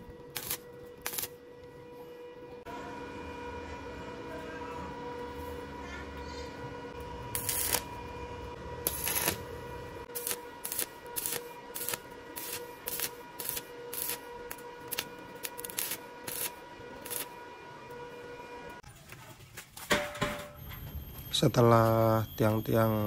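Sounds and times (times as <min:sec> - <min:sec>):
steady hum: 0:00.0 - 0:18.8
crackling welding arc: 0:00.3 - 0:01.4, 0:07.3 - 0:08.1, 0:08.8 - 0:09.5, 0:10.1 - 0:17.4.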